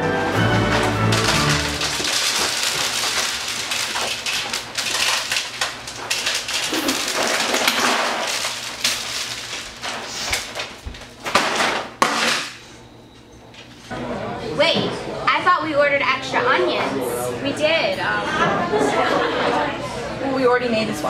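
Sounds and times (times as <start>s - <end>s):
kibble poured into plastic bowl: 0.4s - 10.8s
kibble scattering on wooden floor: 0.5s - 12.6s.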